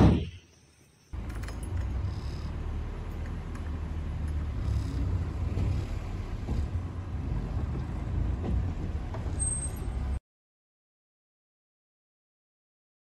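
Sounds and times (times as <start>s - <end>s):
jeep engine and road rumble: 1.1s - 10.2s.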